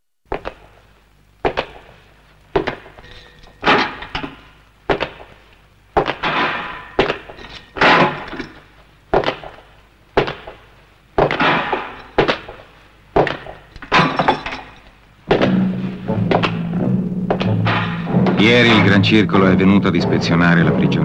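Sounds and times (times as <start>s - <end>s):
sharp knocks: 6.0s - 20.9s
glassy crash: 13.6s - 19.2s
low musical tone: 15.5s - 21.0s.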